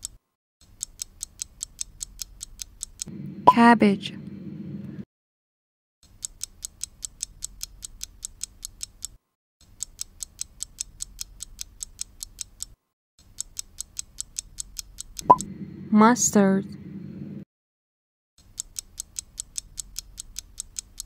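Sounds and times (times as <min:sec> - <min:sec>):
fast clock ticking: 0:00.7 - 0:03.1, 0:06.2 - 0:09.1, 0:18.4 - 0:21.0.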